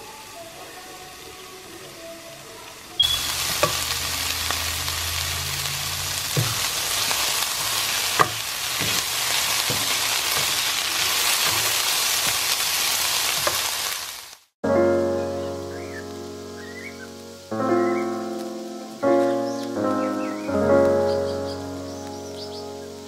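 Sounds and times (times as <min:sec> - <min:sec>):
vegetables sizzling in a pan: 0:00.0 - 0:23.0
spatula tapping a pan: 0:03.0 - 0:04.1, 0:06.3 - 0:12.5, 0:13.4 - 0:13.7.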